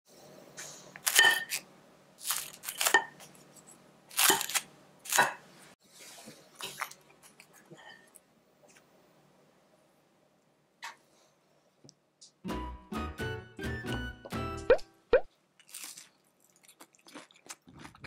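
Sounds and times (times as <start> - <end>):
fried dumpling skirt crunching: 1.0 - 1.6, 2.2 - 3.3, 4.1 - 5.3, 15.6 - 18.0.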